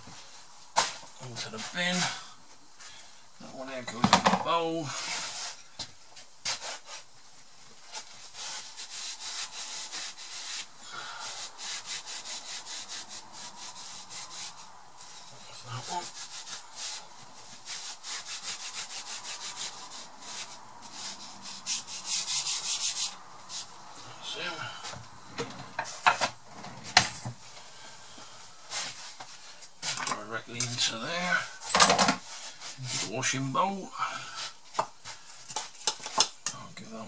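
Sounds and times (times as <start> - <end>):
scrubbing utensil in washing-up bowl: 7.9 - 23.8.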